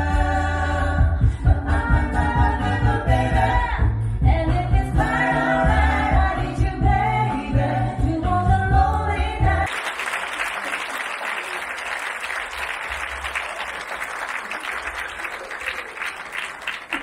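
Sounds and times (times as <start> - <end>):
song with singing and music: 0.0 - 9.7
audience applauding: 9.7 - 17.0.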